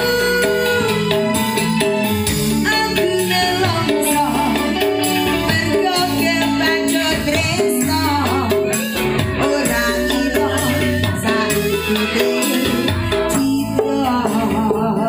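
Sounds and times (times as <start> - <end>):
woman singing: 0.0 - 1.9, 2.5 - 15.0
bass line: 0.0 - 15.0
keyboard-led band: 0.0 - 15.0.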